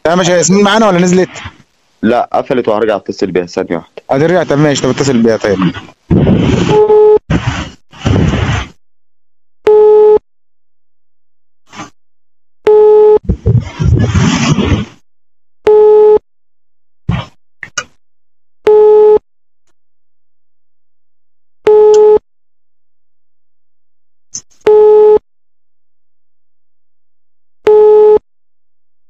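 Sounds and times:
crackling noise: 0.0 - 8.8, 11.7 - 12.0, 12.7 - 15.0, 17.1 - 18.0
phone ringback beeps: 6.7 - 7.2, 9.7 - 10.2, 12.7 - 13.2, 15.7 - 16.2, 18.7 - 19.2, 21.7 - 22.2, 24.7 - 25.2, 27.7 - 28.2.

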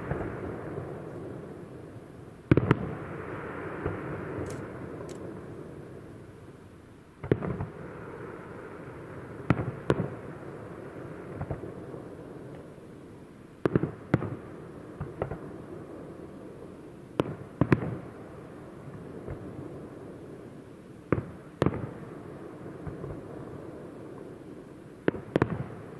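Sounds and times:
firework bangs with echoing rumble: 0.0 - 5.7, 7.2 - 12.5, 13.6 - 16.0, 17.2 - 20.1, 21.1 - 24.4, 25.0 - 25.9.

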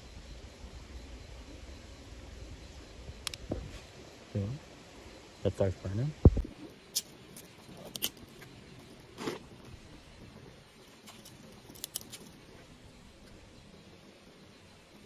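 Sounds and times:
kindling crackling: 6.6 - 12.8.

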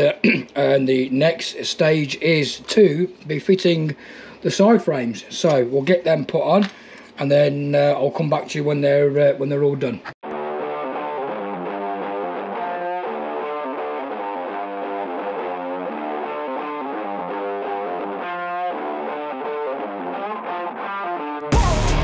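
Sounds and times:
instrumental background music: 10.2 - 22.0.

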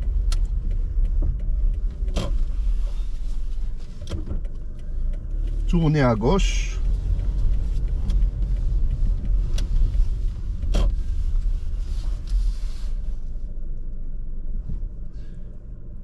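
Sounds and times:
car cabin rumble: 0.0 - 16.0
scattered clicks: 4.0 - 11.0.

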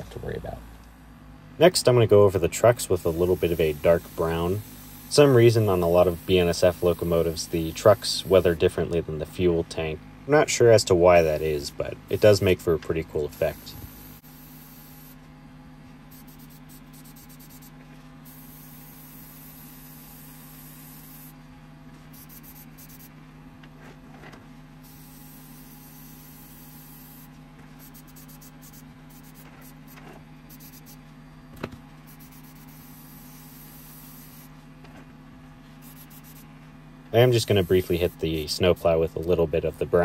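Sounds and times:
steady low hum: 0.0 - 40.0
airbrush spraying hiss: 2.9 - 8.6, 13.3 - 15.2, 16.1 - 21.4, 22.1 - 23.1, 24.8 - 31.0, 32.1 - 34.5, 35.8 - 36.4.

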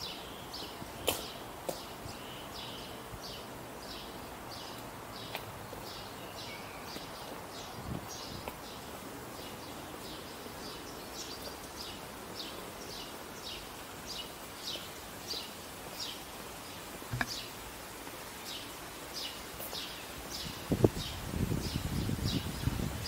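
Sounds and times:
bird chirping: 0.0 - 17.6
outdoor background hiss: 0.0 - 23.0.

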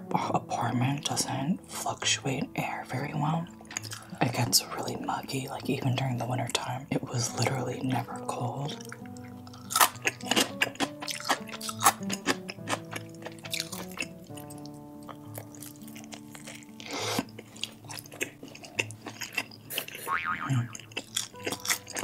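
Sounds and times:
background music with held notes: 0.0 - 22.0
chewing and crunching food: 1.0 - 22.0
noisy bite or slurp: 15.4 - 22.0.

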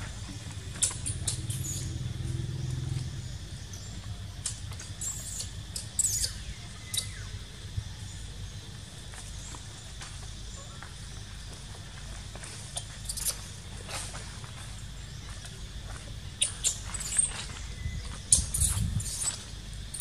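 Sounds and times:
dry leaves rustling: 11.7 - 18.2.

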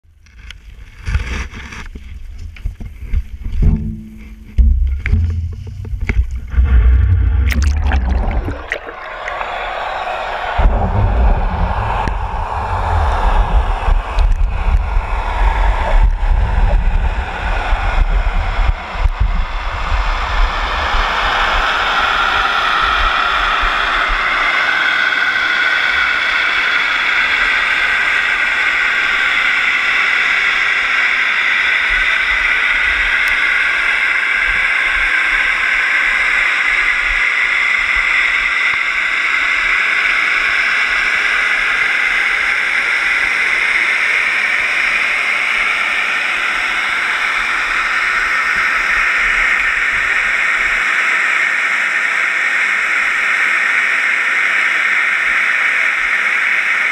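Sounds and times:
faint whine drifting in pitch: 0.3 - 56.8
water rushing past camera housing: 1.2 - 22.2.

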